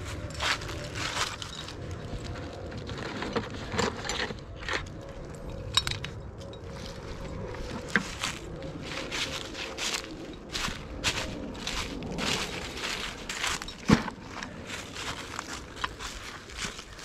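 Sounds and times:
dry leaves crackling underfoot: 0.0s - 3.7s, 6.4s - 17.0s
rummaging in plastic bucket: 0.3s - 5.0s, 11.1s - 17.0s.

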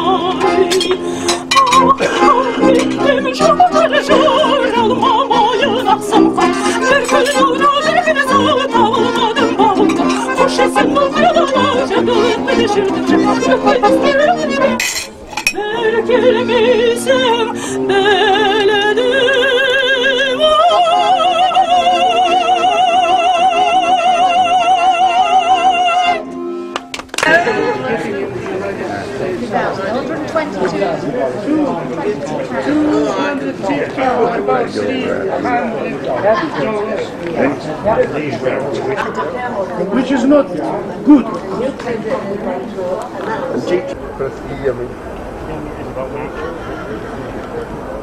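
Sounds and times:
woman singing with vibrato: 0.0s - 26.6s, 27.2s - 28.0s
accordion chords: 0.0s - 29.7s.

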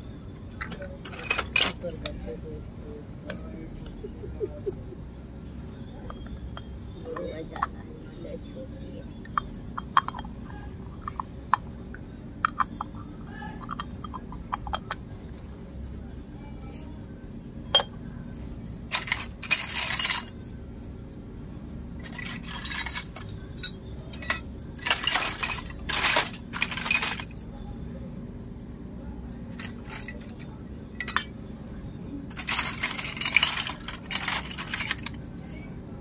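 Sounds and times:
toy metal cookware clinking: 18.8s - 20.6s, 22.0s - 27.8s, 32.3s - 35.6s.

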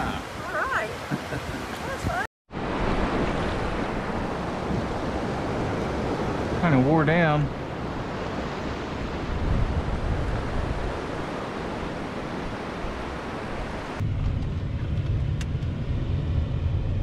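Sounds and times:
wind noise on microphone: 0.0s - 6.7s, 7.5s - 17.0s
ocean surf: 0.0s - 14.0s
low rumble: 14.0s - 17.0s.

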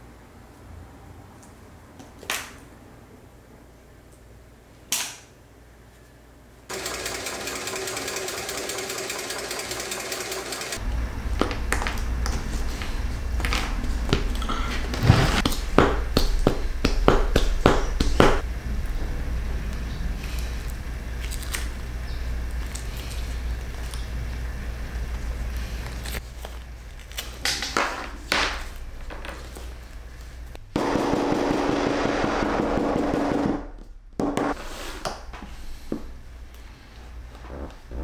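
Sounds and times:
sewing machine motor hum: 6.7s - 10.8s, 30.8s - 33.7s.

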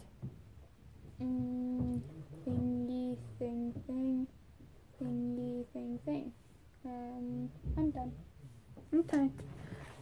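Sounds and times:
person humming: 1.2s - 4.3s.

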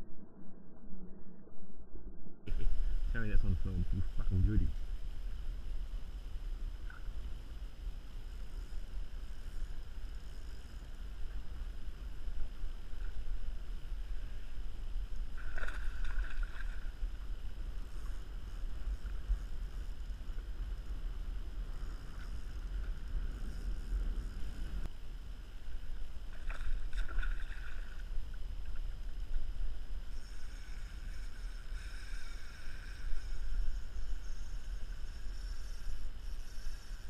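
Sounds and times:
wind rumble on microphone: 0.0s - 37.0s
waves lapping against kayak hull: 15.4s - 17.0s, 26.3s - 28.8s
fishing reel winding: 30.1s - 37.0s.

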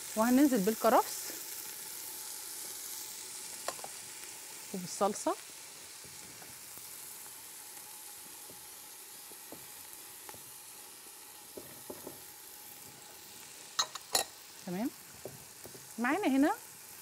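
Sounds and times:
food sizzling in a pot: 0.0s - 17.0s
spoon tapping a pot: 13.8s - 14.3s.

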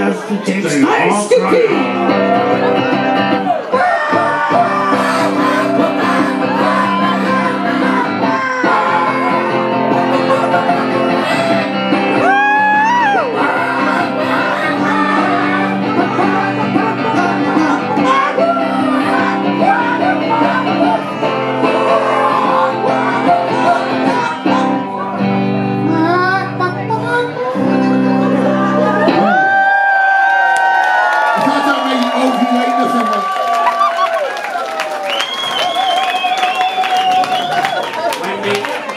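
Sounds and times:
live rock band: 0.0s - 38.6s
electric guitar: 0.8s - 38.9s
amplified singing: 1.4s - 29.6s.

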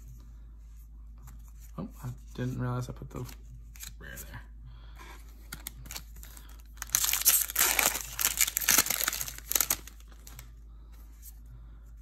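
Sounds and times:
foil wrapper crinkling: 5.9s - 10.4s.

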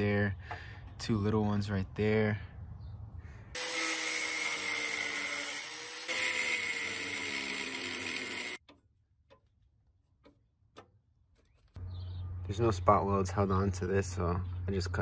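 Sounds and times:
angle grinder grinding steel: 3.6s - 8.6s.

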